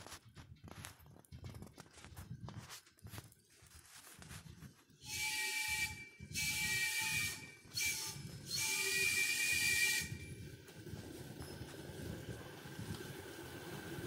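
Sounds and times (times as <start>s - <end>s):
low rumble of train on track: 0.0s - 14.0s
steam whistle blasts: 5.0s - 10.4s.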